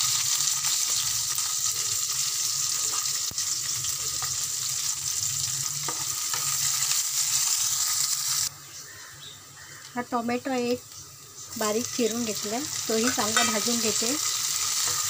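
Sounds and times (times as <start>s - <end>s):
onion sizzling in hot oil: 0.0s - 8.5s, 10.0s - 15.0s
spatula stirring in pan: 13.0s - 15.0s.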